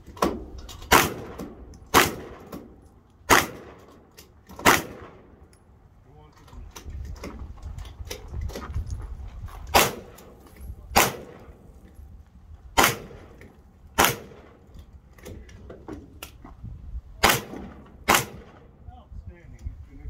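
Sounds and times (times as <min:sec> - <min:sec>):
handgun shots: 0:00.2 - 0:02.7, 0:03.3 - 0:03.9, 0:04.5 - 0:05.2, 0:09.7 - 0:11.6, 0:12.8 - 0:13.4, 0:14.0 - 0:14.6, 0:17.2 - 0:18.6.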